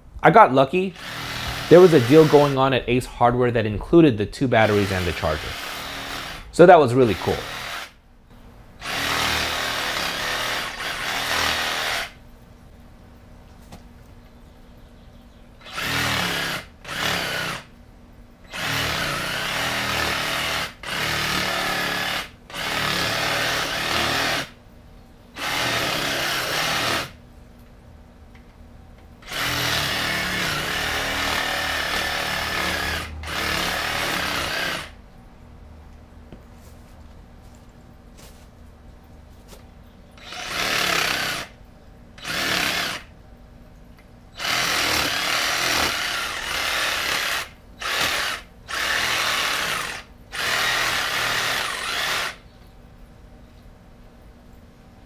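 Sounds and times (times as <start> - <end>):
reciprocating saw cutting roots: 0.9 - 2.7, 4.6 - 7.9, 8.8 - 12.2, 15.6 - 17.7, 18.5 - 24.5, 25.4 - 27.2, 29.2 - 35.0, 40.2 - 41.6, 42.2 - 43.1, 44.4 - 52.4.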